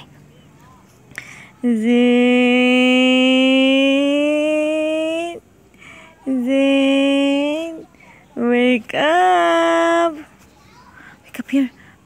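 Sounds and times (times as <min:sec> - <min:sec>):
woman's sing-song call: 0:01.6 - 0:05.4, 0:06.2 - 0:07.8.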